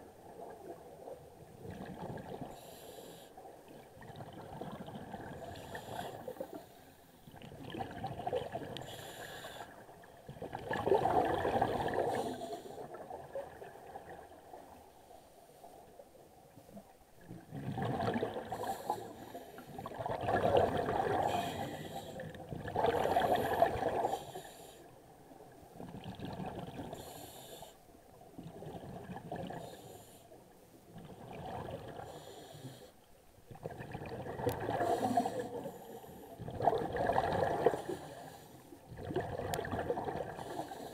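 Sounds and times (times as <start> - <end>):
underwater regulator bubbling: 19.8 - 24.2, 33.5 - 35.7, 38.9 - 40.8.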